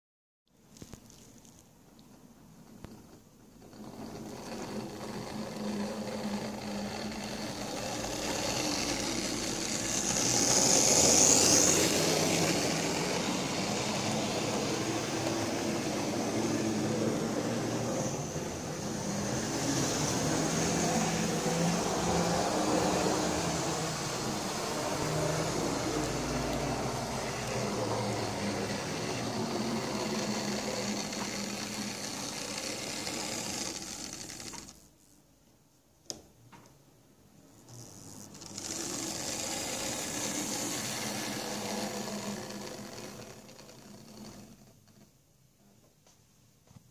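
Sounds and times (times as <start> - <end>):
model train motor whir: 2.8 - 35.2, 37.6 - 45.1
wheels rattling on rails: 2.9 - 18.4, 19.0 - 34.8, 38.4 - 44.6.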